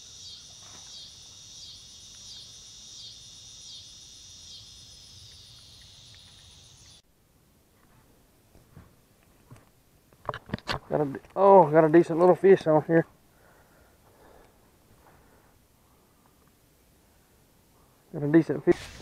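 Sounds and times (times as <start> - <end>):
insects buzzing: 0.0 - 7.0.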